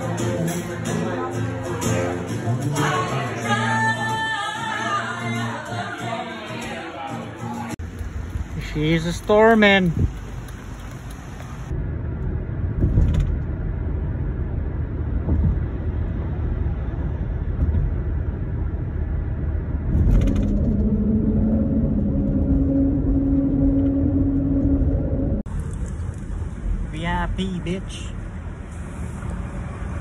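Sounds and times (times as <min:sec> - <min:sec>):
road and engine rumble: 0:07.7 - 0:30.0
steady droning hum: 0:10.5 - 0:30.0.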